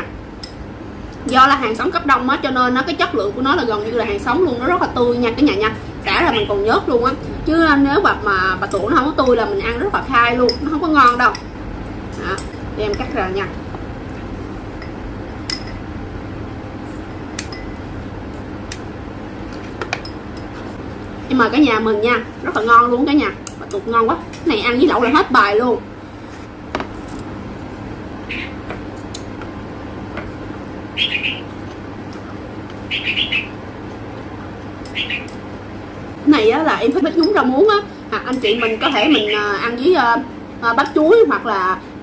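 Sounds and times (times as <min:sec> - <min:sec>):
steady background noise: 0:00.0 - 0:42.0
bird chirping: 0:28.3 - 0:28.6, 0:31.0 - 0:31.5, 0:32.9 - 0:33.6, 0:34.9 - 0:35.3.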